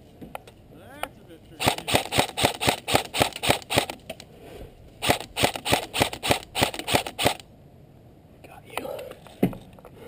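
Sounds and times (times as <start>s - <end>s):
airsoft rifle shots: 1.6s - 4.2s, 5.0s - 7.5s.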